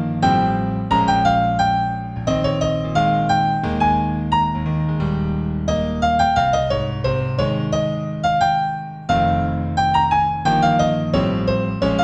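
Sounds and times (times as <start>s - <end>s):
solo piano tune: 0.0s - 12.0s.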